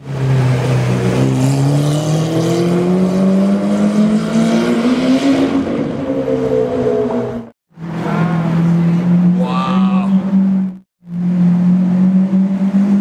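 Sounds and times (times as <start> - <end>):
car engine accelerating hard: 0.1 - 6.1, 10.2 - 13.0.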